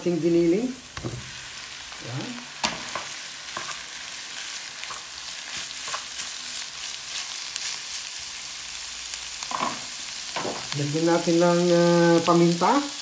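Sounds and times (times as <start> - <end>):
meat sizzling in hot oil: 0.0 - 13.0
spatula scraping a pan: 2.6 - 6.4.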